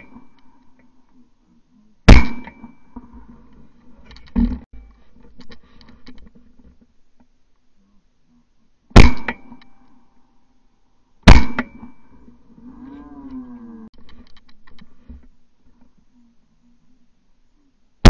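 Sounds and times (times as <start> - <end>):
shotgun shots: 2.1 - 2.8, 9.0 - 9.6, 11.2 - 12.0.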